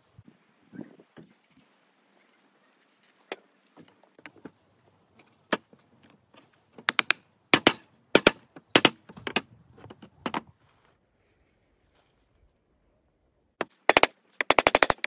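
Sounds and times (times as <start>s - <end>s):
hammer striking nails into wood: 6.8s - 9.5s.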